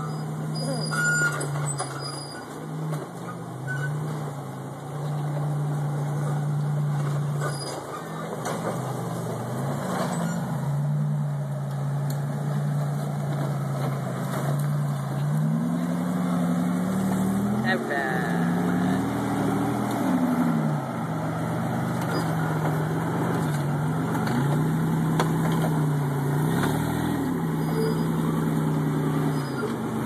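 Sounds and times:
buggy engine revving hard: 0.0s - 30.0s.

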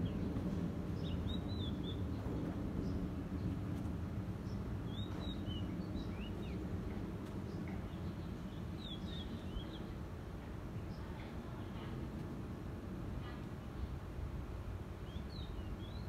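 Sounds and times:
small birds chirping: 0.0s - 3.8s, 4.4s - 10.1s, 15.0s - 16.0s.

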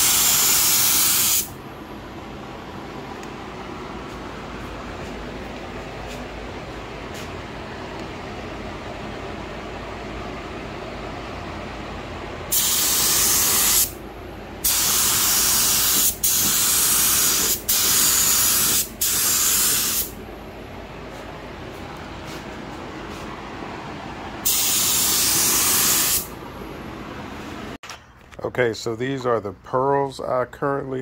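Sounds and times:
spray gun hissing: 0.0s - 1.5s, 12.5s - 14.0s, 14.6s - 20.2s, 24.4s - 26.3s.

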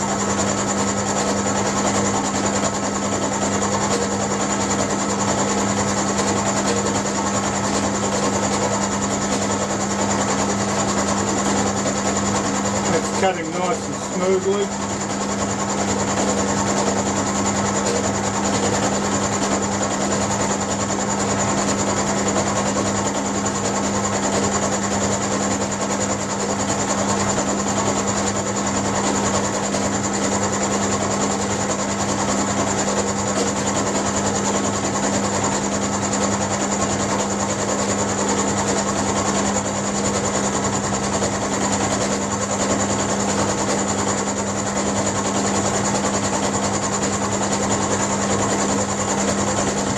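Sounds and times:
end mill cutting steel: 0.0s - 22.6s
motor hum: 0.0s - 49.9s.

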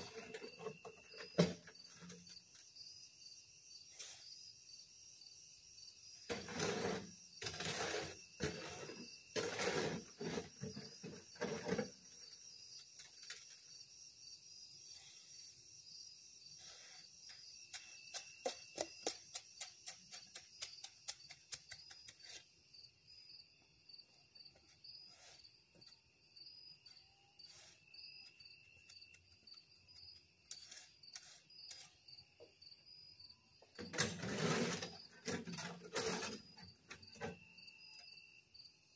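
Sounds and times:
hoe scraping concrete in wheelbarrow: 0.0s - 2.3s, 6.3s - 12.2s, 30.5s - 32.0s, 33.8s - 37.4s
crickets chirping: 0.0s - 38.9s.

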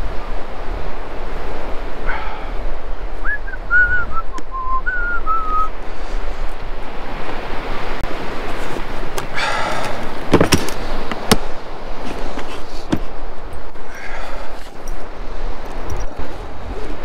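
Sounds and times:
wind and surf: 0.0s - 17.0s
person whistling: 3.2s - 5.7s.

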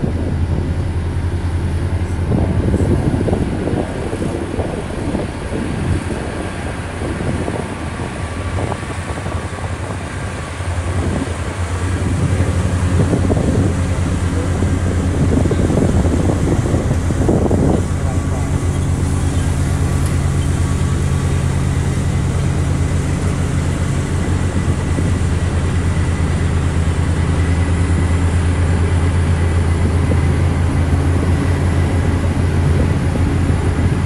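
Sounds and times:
diesel engines humming: 0.0s - 34.0s
wind on microphone: 0.0s - 34.0s.

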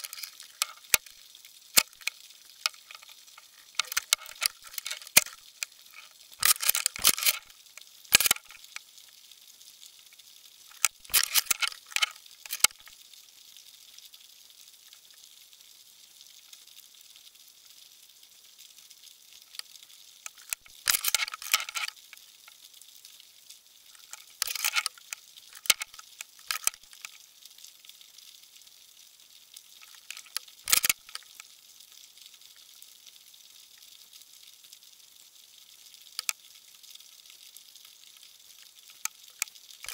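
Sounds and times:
underwater crackling clicks: 0.0s - 8.8s, 10.7s - 12.9s, 19.5s - 22.2s, 23.9s - 27.2s, 29.8s - 31.5s, 36.2s - 36.4s, 38.9s - 39.9s
faint steady hiss: 0.0s - 39.9s.

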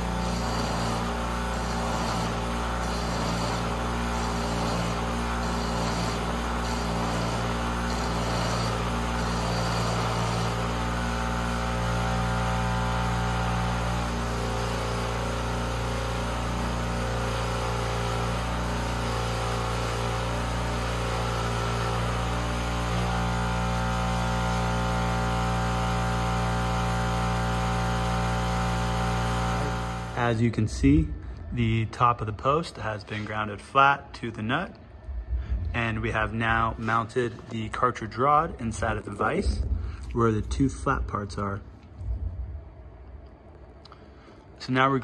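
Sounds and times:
bench grinder motor hum: 0.0s - 30.2s
grinding wheel on steel: 0.0s - 30.2s.

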